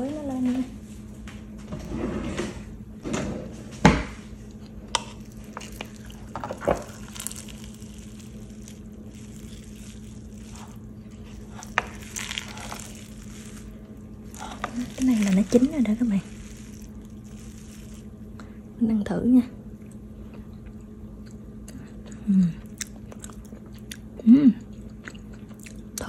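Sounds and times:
rice squishing and scraping: 5.0s - 18.2s.

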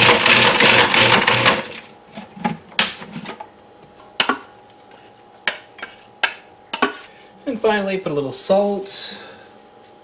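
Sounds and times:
food processor running: 0.0s - 1.9s.

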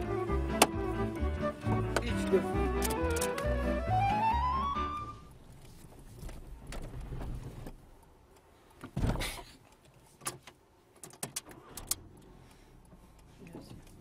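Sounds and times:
sharp clicks of car controls: 2.8s - 3.5s, 9.6s - 14.0s.

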